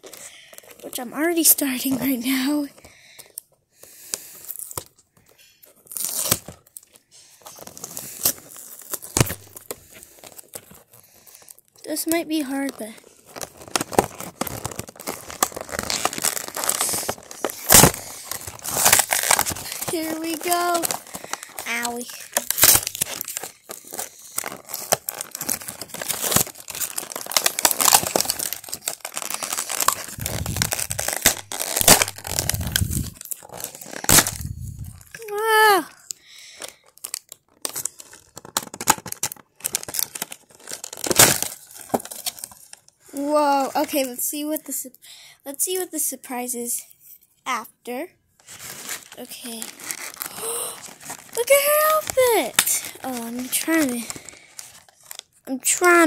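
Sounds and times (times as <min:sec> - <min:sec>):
packaging crinkling: 0:03.9 - 0:44.0, 0:48.4 - 0:56.0
packaging ripping: 0:05.8 - 0:11.6, 0:12.3 - 0:42.8, 0:48.4 - 0:56.0.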